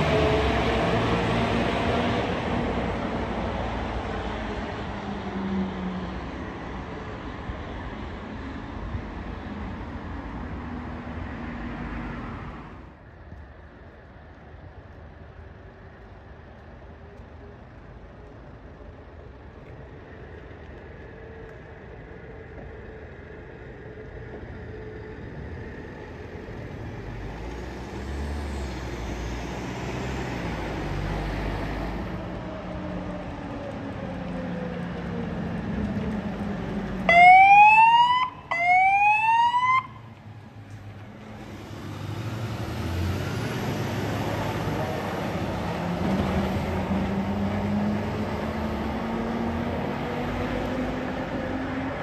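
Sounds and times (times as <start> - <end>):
fire engine and road noise: 0.0 - 52.0
siren whoops: 37.1 - 40.0.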